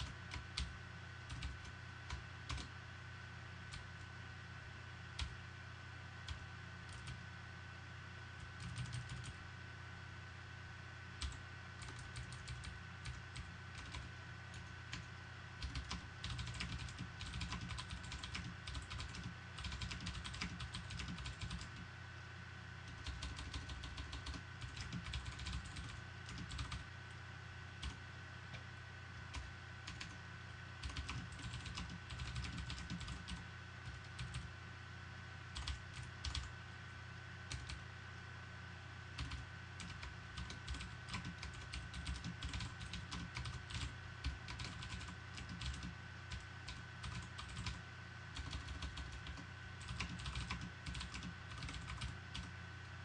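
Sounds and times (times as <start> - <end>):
typing on computer keyboard: 0.0 - 0.7, 1.3 - 2.7, 6.3 - 7.2, 8.4 - 9.4, 11.2 - 21.8, 22.9 - 26.8, 29.3 - 30.2, 30.8 - 34.5, 35.6 - 36.5, 37.5 - 37.8, 39.2 - 52.5
steady low hum: 0.0 - 53.0.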